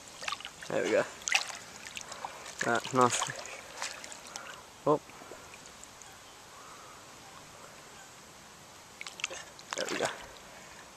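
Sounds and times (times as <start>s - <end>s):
faint outdoor ambience: 0.0s - 10.9s
hand splashing water: 1.2s - 4.4s, 9.0s - 10.3s.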